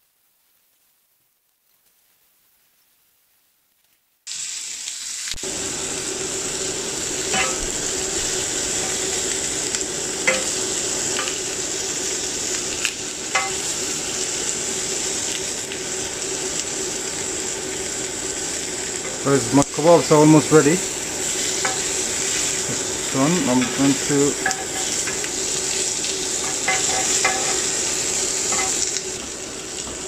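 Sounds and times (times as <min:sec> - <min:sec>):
food sizzling on grill pan: 0:04.3 - 0:30.0
metal spatula clinking on pan: 0:07.3 - 0:07.8, 0:10.3 - 0:10.6, 0:13.4 - 0:13.6, 0:24.4 - 0:25.3, 0:26.4 - 0:27.7, 0:28.5 - 0:28.9.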